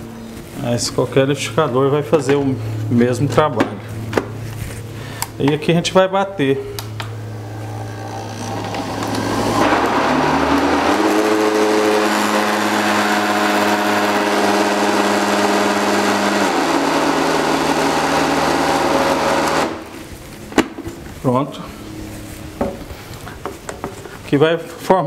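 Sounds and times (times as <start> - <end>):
blender motor whining: 7.0 - 20.1.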